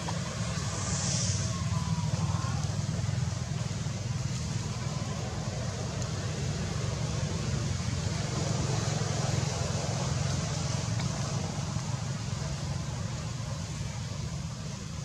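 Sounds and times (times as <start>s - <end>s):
low rumble: 0.0s - 7.4s
even hiss: 0.0s - 15.0s.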